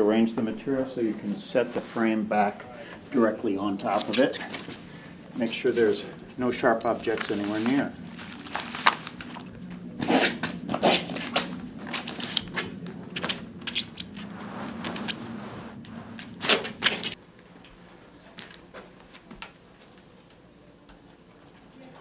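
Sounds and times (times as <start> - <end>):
sheet material rustling and crackling: 3.7 - 6.1, 6.9 - 17.2.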